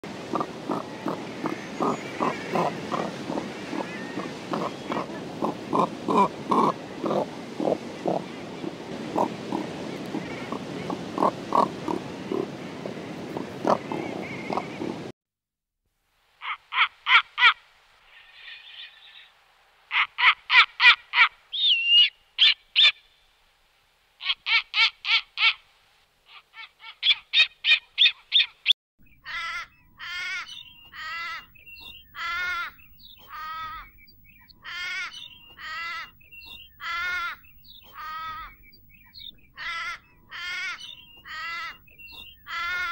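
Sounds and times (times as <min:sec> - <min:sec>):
harsh pitched animal call: 0:00.3 - 0:08.2, 0:29.2 - 0:31.5.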